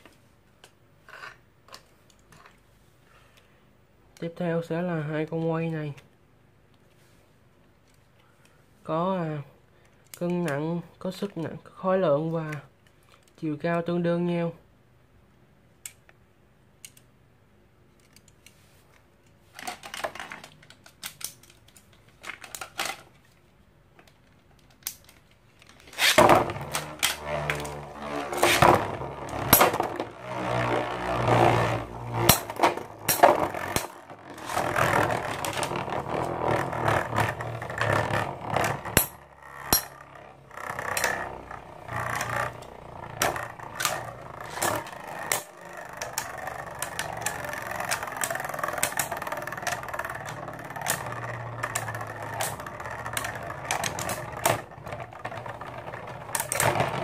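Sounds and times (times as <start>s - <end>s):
spinning tops whirring and clattering: 25.7s - 57.0s.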